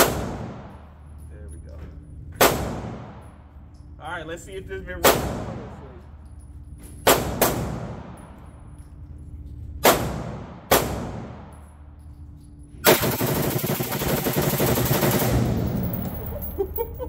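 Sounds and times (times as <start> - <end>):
rapid gunfire: 0.0 - 0.8, 7.1 - 8.2, 9.8 - 11.5, 12.8 - 16.0
gunshots with echo: 0.0 - 1.0, 2.4 - 3.6, 5.0 - 5.9, 7.0 - 8.4, 9.8 - 11.6.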